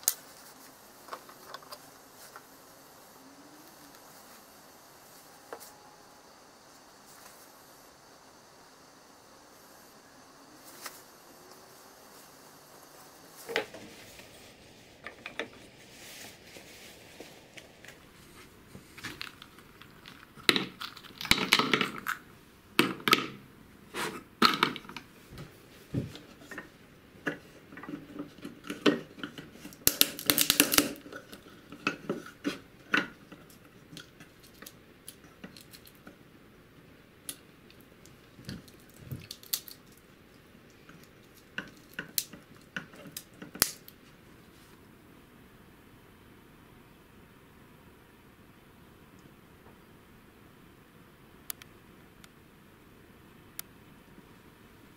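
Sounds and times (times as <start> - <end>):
nutshells cracking: 19.0 - 23.4, 27.9 - 36.0, 37.3 - 40.1, 40.9 - 44.0.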